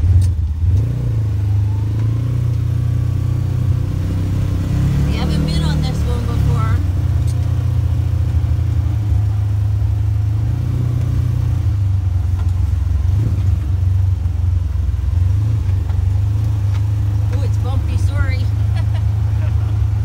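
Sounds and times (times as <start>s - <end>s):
engine steady low drone: 0.0s - 20.0s.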